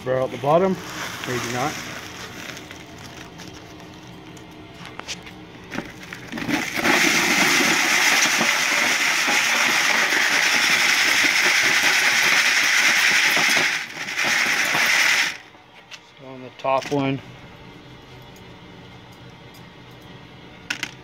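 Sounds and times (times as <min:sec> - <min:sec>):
rock chips rattling in a sieve: 0:00.6 - 0:03.3, 0:06.1 - 0:15.4.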